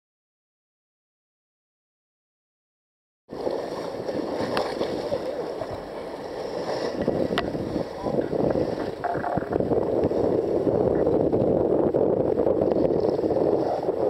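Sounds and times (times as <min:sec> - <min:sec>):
water rushing against boat hull: 0:03.3 - 0:14.0
wind buffeting microphone: 0:03.3 - 0:14.0.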